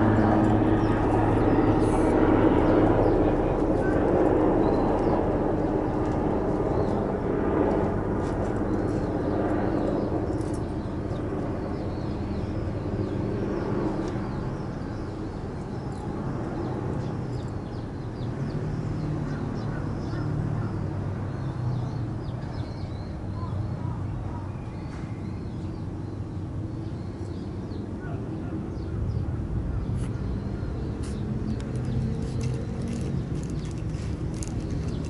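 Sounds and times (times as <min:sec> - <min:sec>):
low outdoor rumble: 0:00.0 - 0:25.2.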